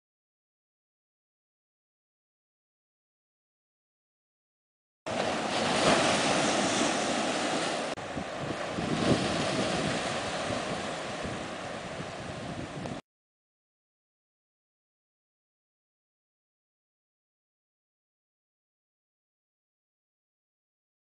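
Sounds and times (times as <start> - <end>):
ocean waves splashing on rocks: 5.1 - 13.0
wind buffeting microphone: 5.2 - 13.0.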